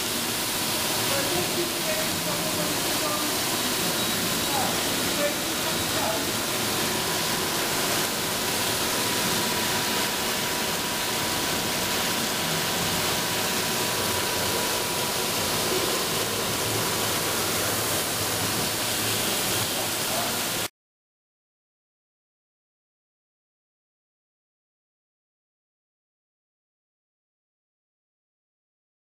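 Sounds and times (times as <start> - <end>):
machine hissing: 0.0 - 20.7.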